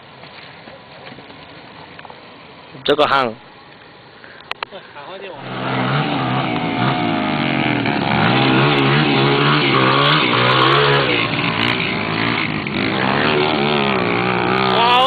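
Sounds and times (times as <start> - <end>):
dirt bike engine revving: 5.4 - 15.0.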